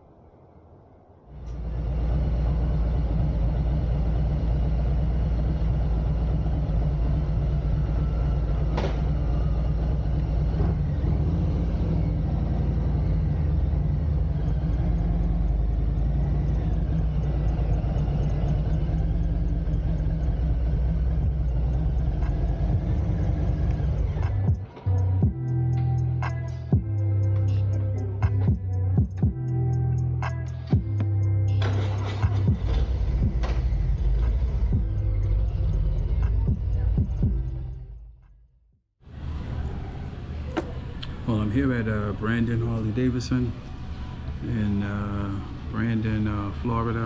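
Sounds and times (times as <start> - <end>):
motorcycle engine idling: 1.6 - 38.1.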